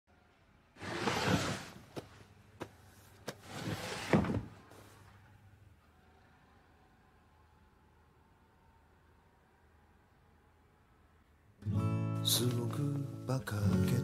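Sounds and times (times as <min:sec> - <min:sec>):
sliding door rolling: 0:00.8 - 0:01.8, 0:03.4 - 0:05.0.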